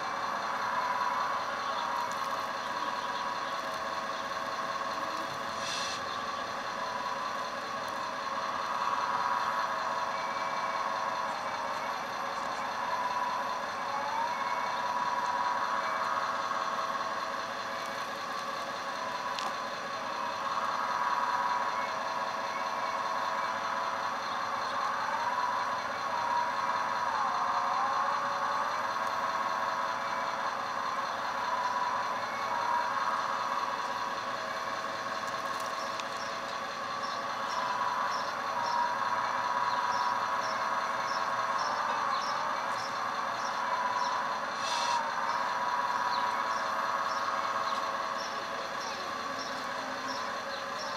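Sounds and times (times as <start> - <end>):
hydraulic pump whining: 0.0 - 50.9.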